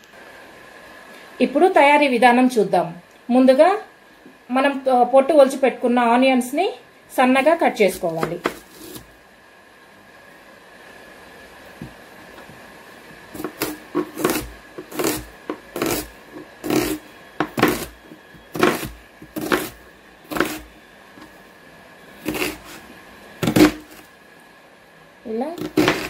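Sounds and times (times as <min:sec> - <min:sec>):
knife cutting onion on chopping board: 0:07.8 - 0:09.1, 0:13.4 - 0:20.7, 0:22.2 - 0:24.1, 0:25.6 - 0:26.0.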